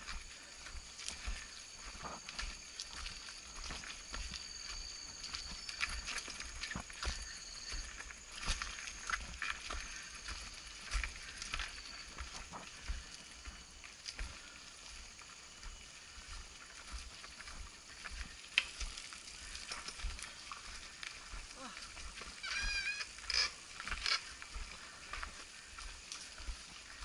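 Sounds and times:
bike clicks and rattles: 22.9s - 24.5s.

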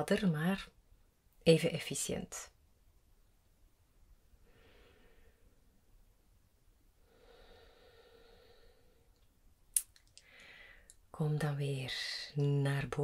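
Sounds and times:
soft slow breathing: 4.4s - 5.9s, 7.0s - 9.4s, 10.2s - 11.0s.

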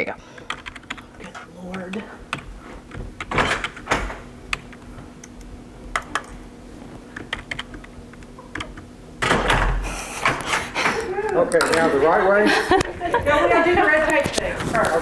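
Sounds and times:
keyboard typing clicks: 0.4s - 1.0s, 4.5s - 6.4s, 7.2s - 8.9s.

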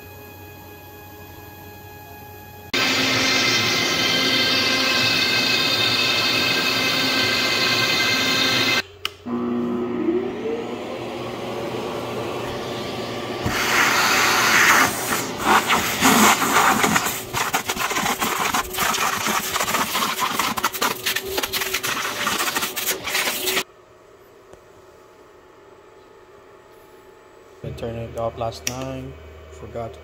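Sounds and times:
electric motor whine: 0.0s - 16.8s.

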